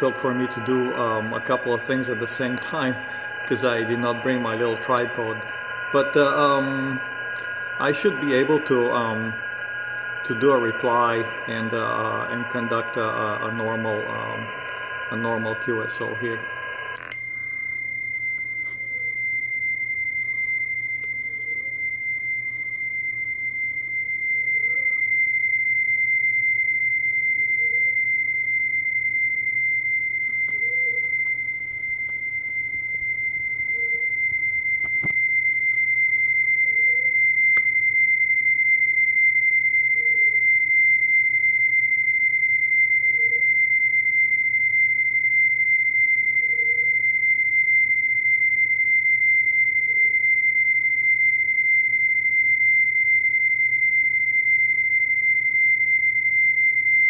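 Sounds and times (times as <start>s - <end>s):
high-pitched digital transmit tone: 0.0s - 17.4s, 30.3s - 35.1s.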